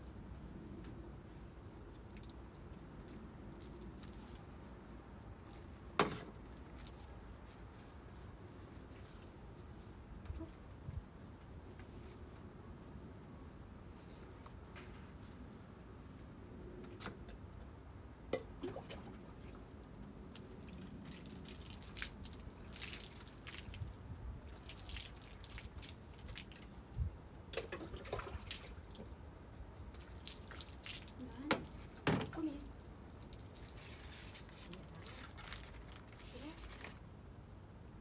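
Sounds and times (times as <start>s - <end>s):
water dripping and splashing: 1.9s - 4.6s, 18.4s - 27.0s, 27.6s - 38.0s.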